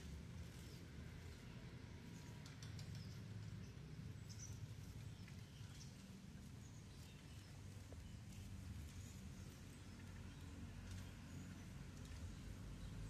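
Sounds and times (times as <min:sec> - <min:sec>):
insect net rustling over dry weeds: 0:00.0 - 0:01.8, 0:05.7 - 0:12.8.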